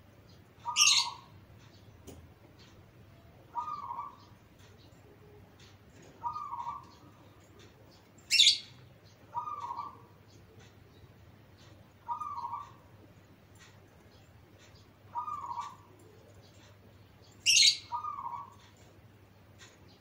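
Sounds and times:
dove cooing: 0.6s - 1.3s, 3.3s - 4.4s, 5.0s - 8.6s, 9.2s - 10.2s, 12.0s - 13.0s, 15.1s - 16.6s, 17.5s - 18.6s.

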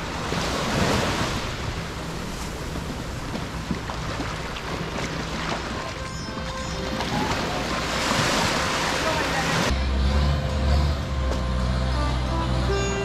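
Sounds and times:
small waves washing onto sand: 0.0s - 9.7s.

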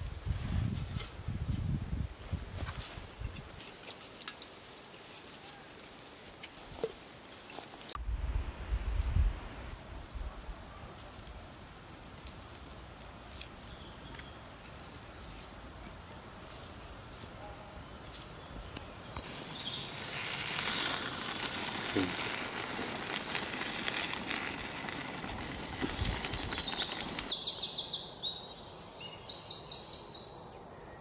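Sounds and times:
stew sizzling in pot: 19.1s - 27.3s
bird chirps: 24.0s - 31.0s.

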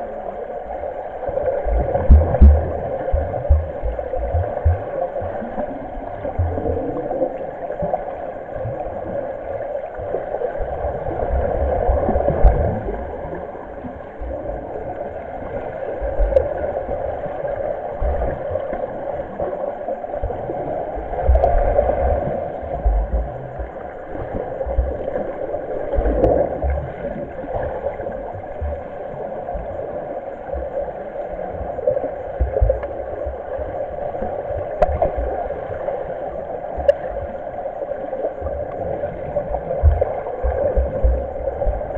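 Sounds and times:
muffled underwater splashing: 0.0s - 41.9s
low underwater thumps: 1.7s - 5.6s, 6.2s - 6.8s, 11.3s - 13.0s, 22.7s - 23.9s, 24.6s - 25.2s, 28.3s - 28.9s, 39.8s - 41.9s.

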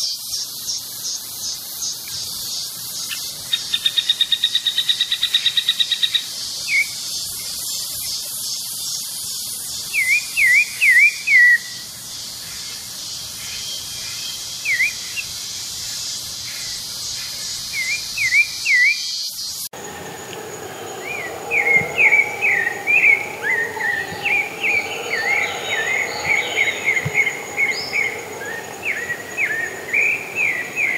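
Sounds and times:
high insect hiss: 0.0s - 30.9s
thrush singing whistled notes: 13.6s - 15.4s, 17.6s - 30.9s.

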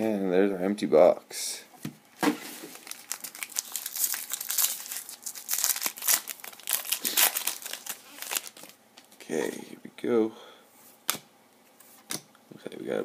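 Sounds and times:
foil wrapper crinkling and tearing: 2.4s - 8.8s.

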